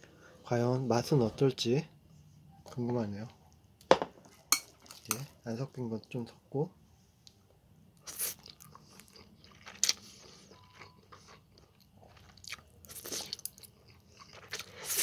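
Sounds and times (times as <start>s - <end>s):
person chewing: 8.0s - 15.0s
person slurping noodles: 14.6s - 15.0s.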